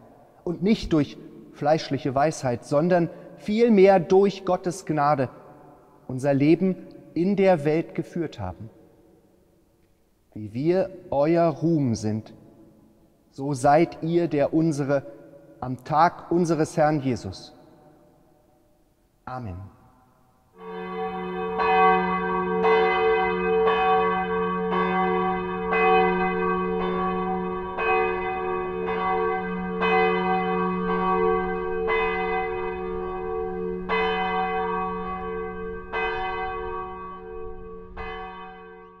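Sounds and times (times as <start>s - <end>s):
large church bell ringing: 20.6s - 39.0s.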